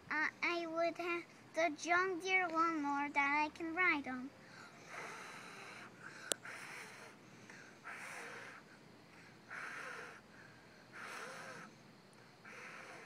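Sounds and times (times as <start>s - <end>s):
child blowing breathy puffs: 4.5s - 11.8s, 12.4s - 13.0s.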